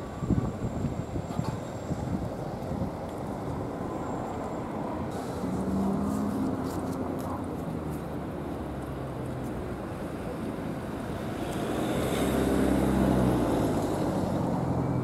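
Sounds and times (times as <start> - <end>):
wind on microphone: 0.0 - 3.9.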